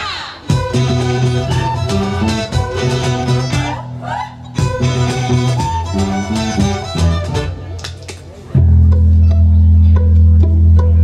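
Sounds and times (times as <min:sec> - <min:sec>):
strummed acoustic guitars: 0:00.5 - 0:07.6
fiddles: 0:00.6 - 0:07.6.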